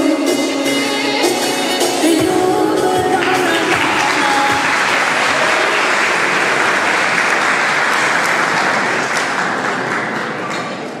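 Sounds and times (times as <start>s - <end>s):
people applauding: 3.1s - 11.0s.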